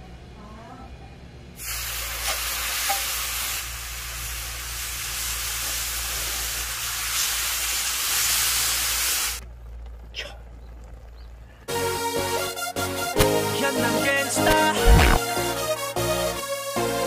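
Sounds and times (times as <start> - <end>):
meat sizzling on a griddle: 1.6 - 9.4.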